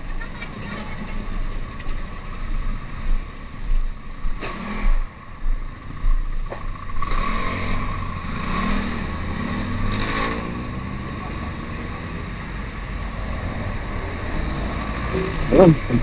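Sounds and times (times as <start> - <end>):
steady engine hum: 0.0 - 16.0
motorcycle engines passing: 4.4 - 16.0.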